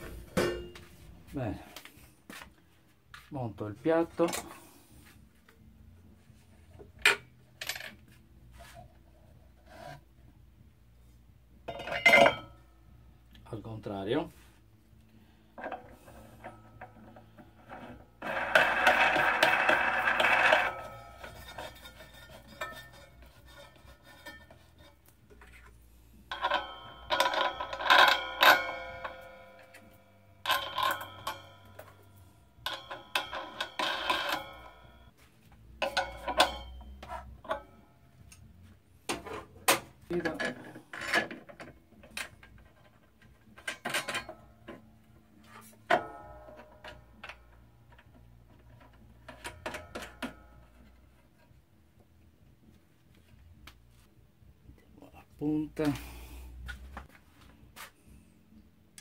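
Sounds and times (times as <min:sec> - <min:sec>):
metallic clicks and knocks: 0:35.7 - 0:38.5.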